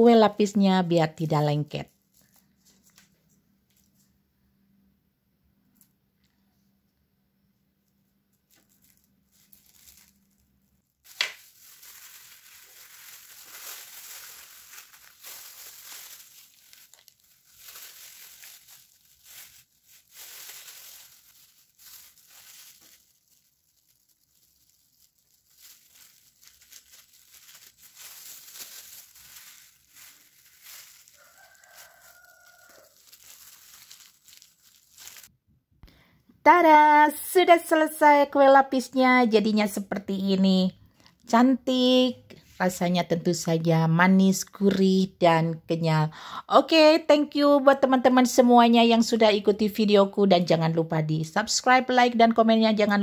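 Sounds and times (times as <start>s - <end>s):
plastic sheet crinkling: 1.1s - 4.0s, 8.3s - 35.3s
rooster crowing: 31.0s - 33.2s.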